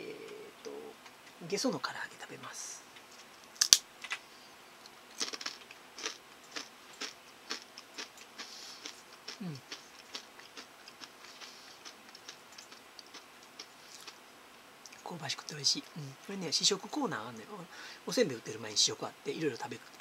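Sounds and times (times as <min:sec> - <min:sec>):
crunchy chewing: 0:05.1 - 0:14.2
fried snack bitten with crack: 0:05.1 - 0:14.2.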